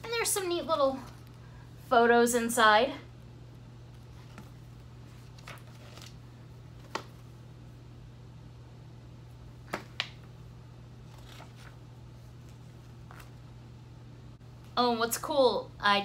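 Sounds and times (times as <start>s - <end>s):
steady low hum: 0.0s - 16.0s
booklet pages turning: 3.9s - 7.3s, 11.0s - 13.4s.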